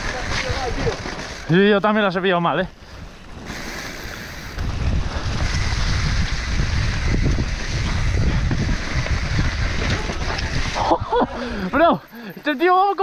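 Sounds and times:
rumble of tyres over ground: 0:00.0 - 0:13.0
wind rushing over microphone: 0:02.7 - 0:11.6.

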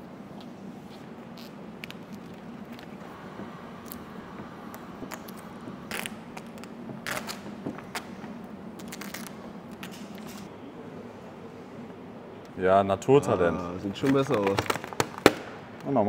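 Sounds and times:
steady low hum: 0:00.0 - 0:16.0
vinyl film crackling: 0:00.9 - 0:10.5, 0:14.0 - 0:15.9.

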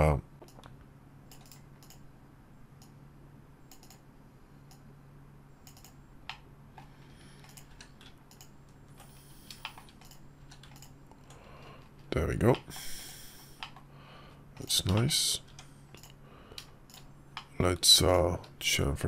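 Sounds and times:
low steady hum: 0:00.0 - 0:19.0
keyboard and mouse clicks: 0:00.4 - 0:02.1, 0:03.7 - 0:04.1, 0:05.6 - 0:12.7, 0:13.6 - 0:13.8, 0:14.6 - 0:17.5.

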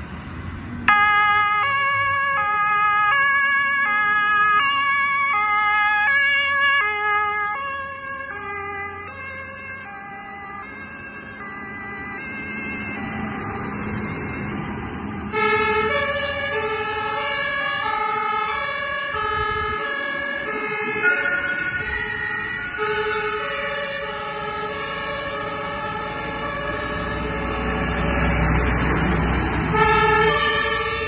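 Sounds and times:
fire engine two-tone sirens: 0:00.8 - 0:31.0.

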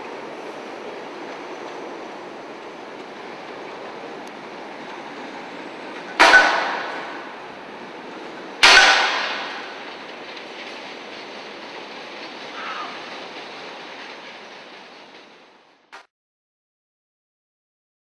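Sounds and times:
train rumbling: 0:00.0 - 0:16.0
loud metallic bangs: 0:06.0 - 0:07.6, 0:08.5 - 0:10.8.

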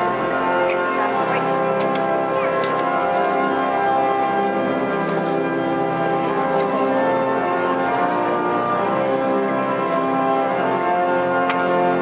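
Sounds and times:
pipe organ chords: 0:00.0 - 0:12.0.

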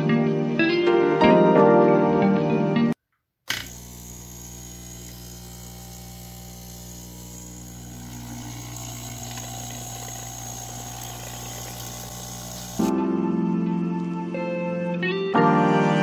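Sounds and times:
pump buzzing hum: 0:03.5 - 0:12.9
water running into cup: 0:04.5 - 0:12.9.

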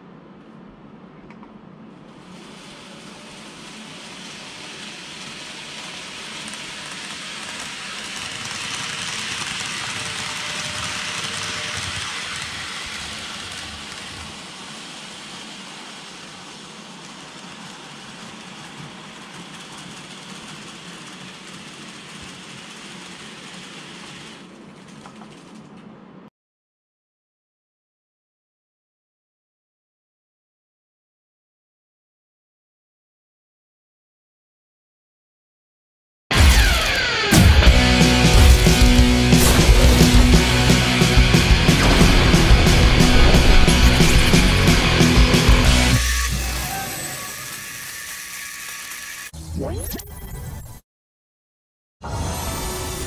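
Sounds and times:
model train running on track: 0:02.2 - 0:24.6, 0:36.4 - 0:49.3.

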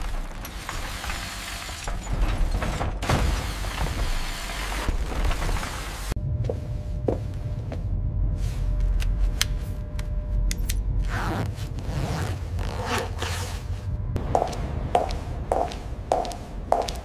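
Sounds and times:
low steady hum: 0:06.2 - 0:17.0.

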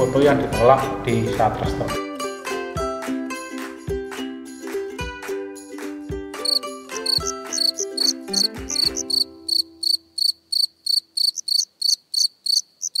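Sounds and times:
plucked ukulele tune: 0:00.0 - 0:09.0
cricket chirps: 0:06.4 - 0:13.0.

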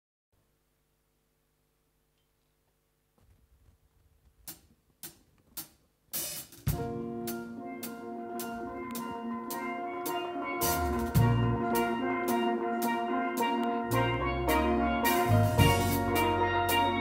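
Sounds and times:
drum strikes: 0:04.5 - 0:17.0
steel pans ringing chords: 0:07.6 - 0:17.0.

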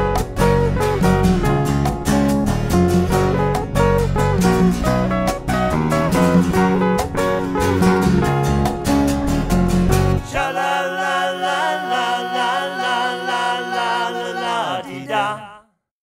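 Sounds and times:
band with guitars and drums: 0:00.0 - 0:10.4
voices singing in harmony: 0:10.2 - 0:15.8.

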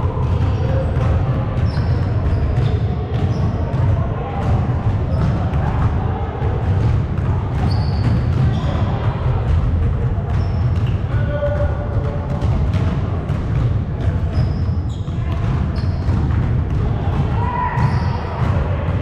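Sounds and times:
sneaker squeaks: 0:00.2 - 0:03.8, 0:05.0 - 0:05.4, 0:07.5 - 0:09.0, 0:10.3 - 0:11.5, 0:14.1 - 0:16.3, 0:17.4 - 0:19.0.

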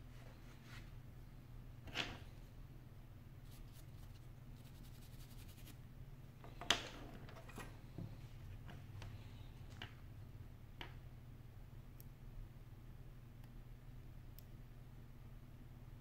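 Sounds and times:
brush scratching metal: 0:03.5 - 0:05.8.

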